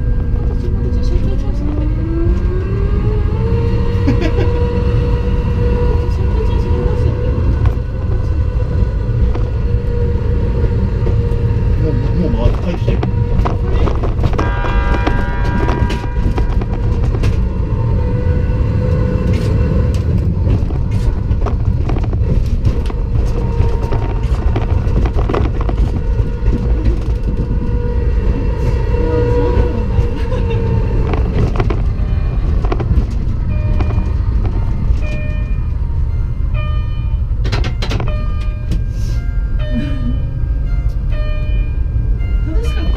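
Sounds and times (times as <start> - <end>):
rumble of wheels on rail: 0.0 - 42.9.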